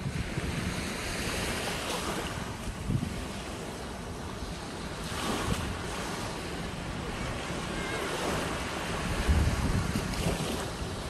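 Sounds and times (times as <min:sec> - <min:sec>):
small waves washing on sand: 0:00.0 - 0:11.0
wind buffeting microphone: 0:00.0 - 0:11.0.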